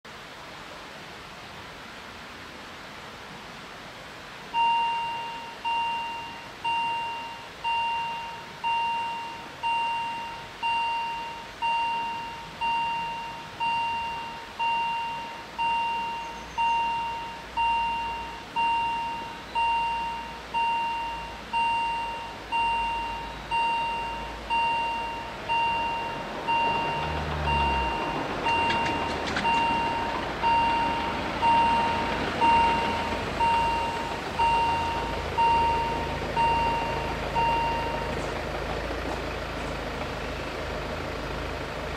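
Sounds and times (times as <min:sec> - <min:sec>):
level crossing warning bell: 0:04.6 - 0:38.4
car driving past: 0:25.4 - 0:40.4.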